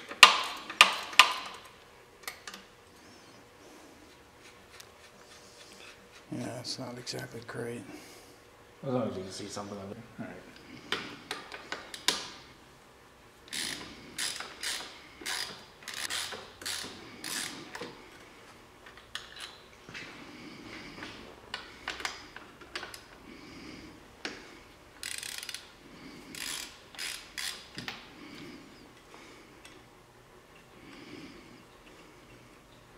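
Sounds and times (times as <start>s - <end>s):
ratchet wrench clicking: 13.5s - 17.5s, 25.0s - 25.7s, 26.3s - 27.8s.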